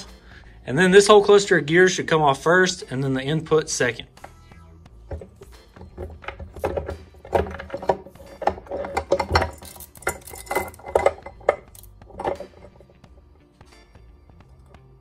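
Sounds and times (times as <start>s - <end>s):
metal gears clinking and clattering: 5.2s - 13.0s.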